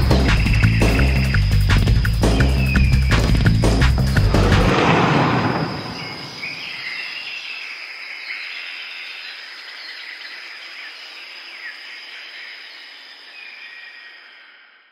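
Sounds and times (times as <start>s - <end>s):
bird chirps: 0.0s - 4.2s, 5.1s - 10.4s
music boom: 0.0s - 6.8s
high insect drone: 0.0s - 14.8s.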